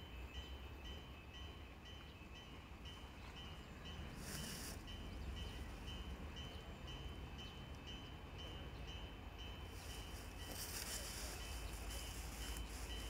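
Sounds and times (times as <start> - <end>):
level crossing warning bell: 0.0 - 13.0
brief rustle: 9.8 - 13.0.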